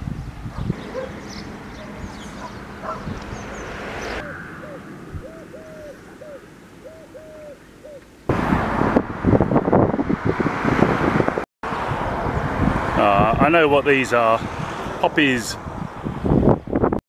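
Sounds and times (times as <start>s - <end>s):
wind buffeting microphone: 0.0s - 6.4s, 8.3s - 17.0s
bird hooting: 0.7s - 8.2s.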